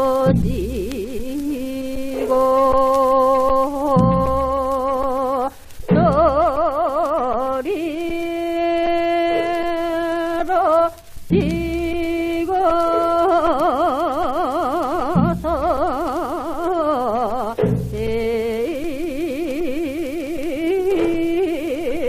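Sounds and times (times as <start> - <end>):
person singing on old record: 0.0 - 22.0
low drum strokes: 0.2 - 3.0, 5.8 - 6.6, 11.1 - 16.7, 17.4 - 19.0.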